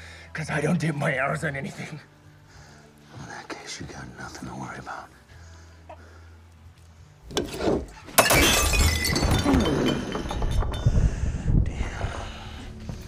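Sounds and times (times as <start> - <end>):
glass breaking crash: 8.1 - 10.9
glass shards tinkling: 8.2 - 11.1.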